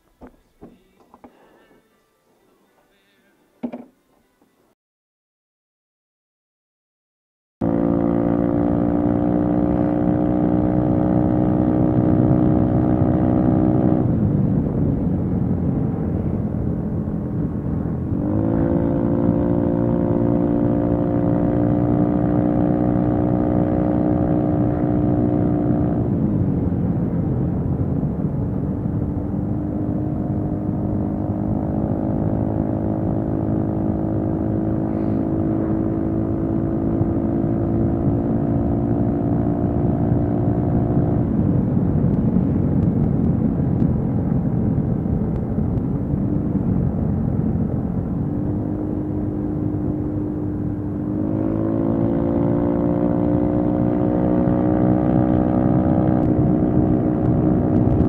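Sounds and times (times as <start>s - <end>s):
scooter engine running: 7.6s - 14.3s, 29.6s - 40.4s
wind rush: 11.5s - 20.6s, 24.4s - 58.0s.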